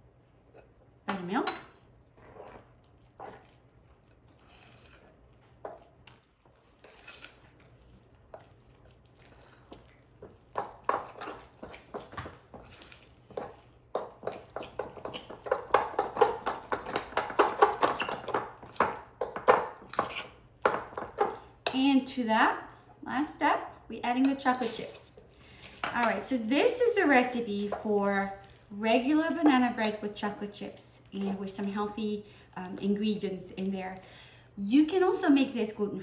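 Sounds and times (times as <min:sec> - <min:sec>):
spoon scraping bowl: 0:02.1 - 0:03.6, 0:04.2 - 0:13.6, 0:19.8 - 0:20.5.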